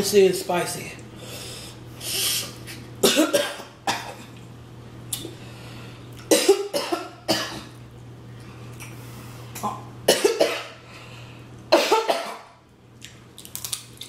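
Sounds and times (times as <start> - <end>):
steady low hum: 0.0 - 14.0
person coughing: 3.0 - 4.3, 6.3 - 7.7, 10.1 - 10.8, 11.7 - 12.5.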